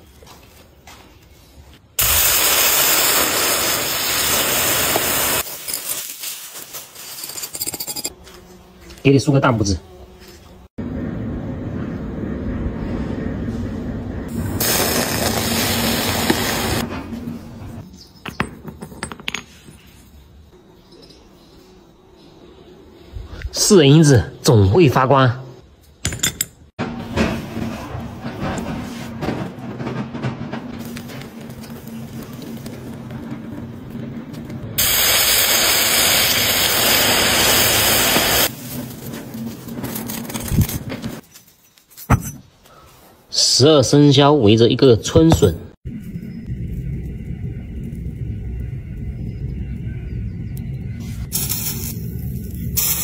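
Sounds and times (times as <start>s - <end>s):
water hissing on hot metal: 2.0s - 7.0s, 14.5s - 16.8s, 34.8s - 38.7s
molten metal hissing: 2.0s - 8.1s, 11.6s - 17.8s, 30.8s - 40.8s, 45.9s - 53.0s
metal ingot clattering on concrete: 18.2s - 19.8s.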